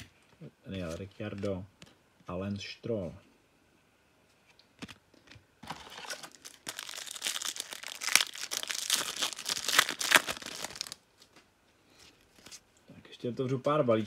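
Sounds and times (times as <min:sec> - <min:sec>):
card pack wrapper crinkling: 0:05.6 - 0:11.0.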